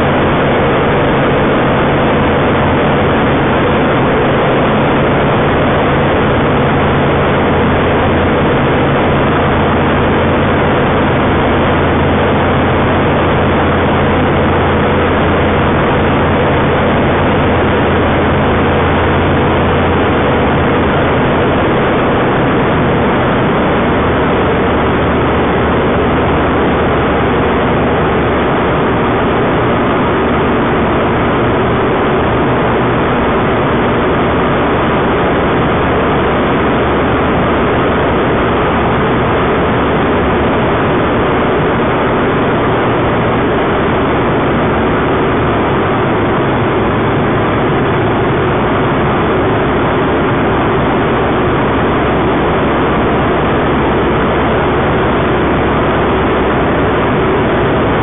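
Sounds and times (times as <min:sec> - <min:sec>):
aircraft engine drone: 0:00.0 - 0:58.0.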